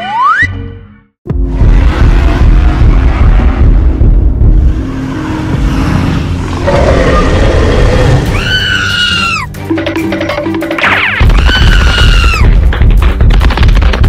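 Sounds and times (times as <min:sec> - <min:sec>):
background music: 0:00.0 - 0:14.0
cartoon dinosaur roar: 0:05.6 - 0:09.4.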